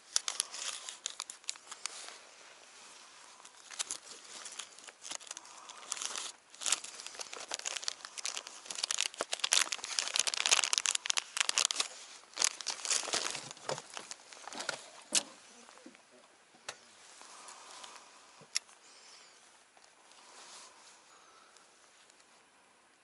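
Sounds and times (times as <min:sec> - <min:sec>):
plastic packets crinkling: 0:00.0 - 0:15.7.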